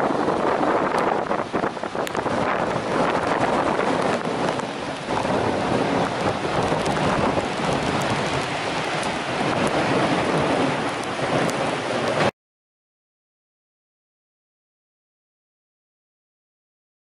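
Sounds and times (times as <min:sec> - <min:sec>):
river rushing over rocks: 0:00.0 - 0:12.3
wind buffeting microphone: 0:00.0 - 0:12.3.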